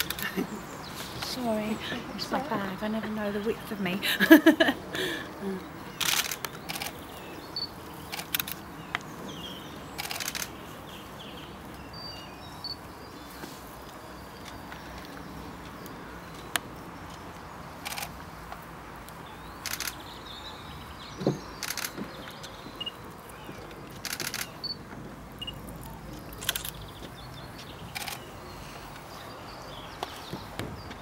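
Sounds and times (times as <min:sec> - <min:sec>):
outdoor background noise: 0:00.0 - 0:31.0
camera shutters clicking: 0:06.0 - 0:07.0, 0:08.1 - 0:08.6, 0:10.0 - 0:10.5, 0:17.8 - 0:18.2, 0:19.6 - 0:20.0, 0:21.6 - 0:22.5, 0:24.0 - 0:24.7, 0:26.4 - 0:26.8, 0:27.9 - 0:28.2.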